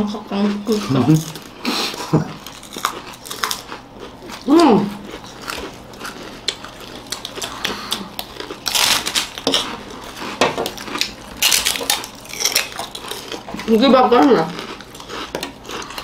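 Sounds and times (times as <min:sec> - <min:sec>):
crunchy chips being chewed: 0:00.4 - 0:16.0.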